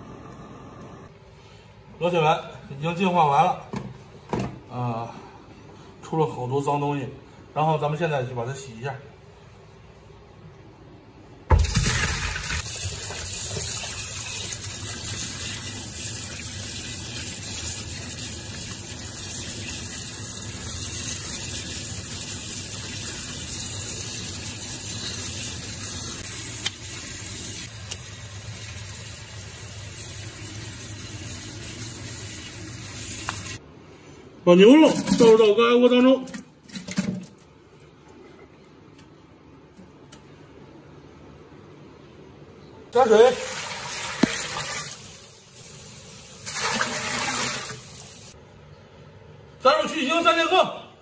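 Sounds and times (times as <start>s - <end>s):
tap water running into sink: 11.5s - 33.6s, 43.5s - 45.2s.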